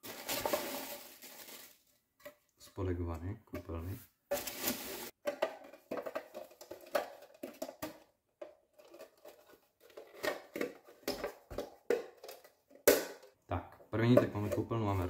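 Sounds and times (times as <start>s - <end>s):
packing peanuts rustling and squeaking: 0.0s - 1.9s
plastic parts clicking and knocking: 5.2s - 14.8s.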